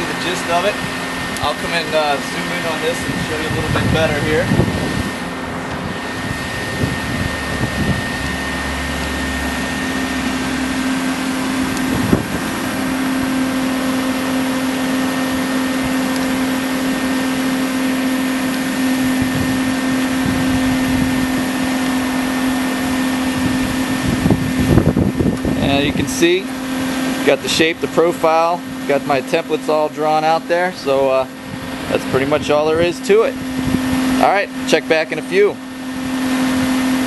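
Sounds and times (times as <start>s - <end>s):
cooling fan whirring hum: 0.0s - 37.0s.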